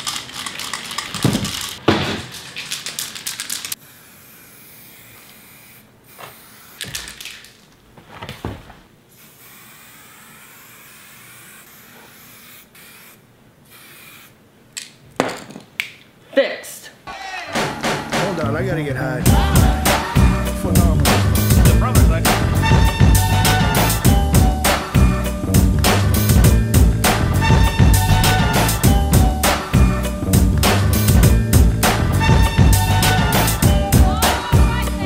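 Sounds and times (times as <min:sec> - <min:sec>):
spray paint can hissing: 0:02.4 - 0:07.6, 0:09.1 - 0:14.4.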